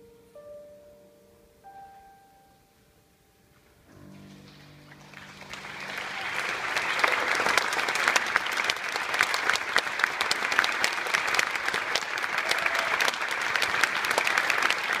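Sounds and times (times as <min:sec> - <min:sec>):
audience applauding: 0:04.5 - 0:15.0.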